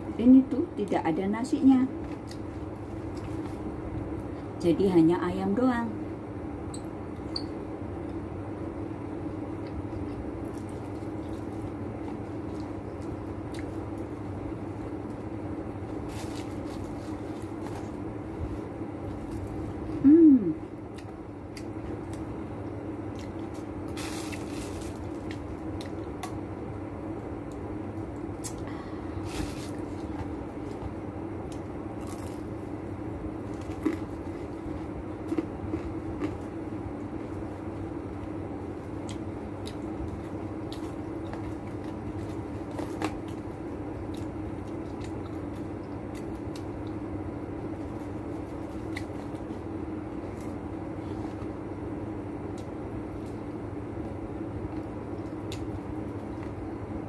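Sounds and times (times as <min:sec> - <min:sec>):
steady low hum: 0:00.0 - 0:57.0
person chewing food: 0:09.6 - 0:14.2, 0:33.4 - 0:37.5, 0:38.9 - 0:47.0.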